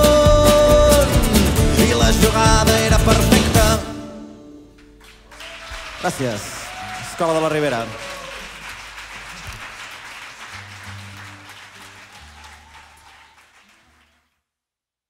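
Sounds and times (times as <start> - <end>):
audience applauding: 4.8 - 14.3.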